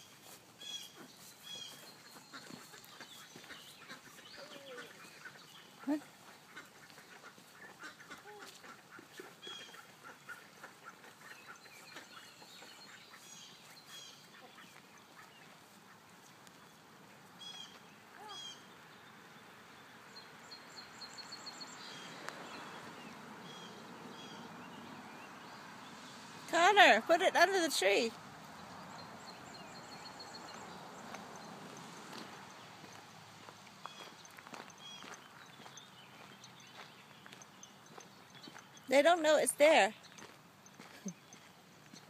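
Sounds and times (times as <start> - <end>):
ducks quacking softly: 0.0 - 16.4.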